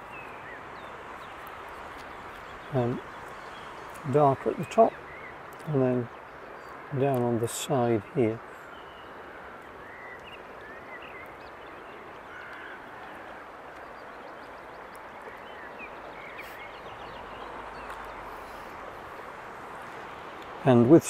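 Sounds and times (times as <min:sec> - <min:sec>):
steady background hiss: 0:00.0 - 0:21.0
faint bird calls: 0:07.9 - 0:19.3.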